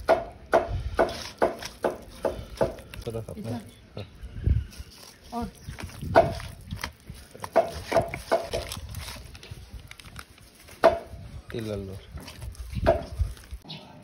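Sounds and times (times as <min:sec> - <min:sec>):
hand squelching meat in marinade: 0:01.1 - 0:03.3, 0:04.6 - 0:10.7, 0:11.6 - 0:13.6.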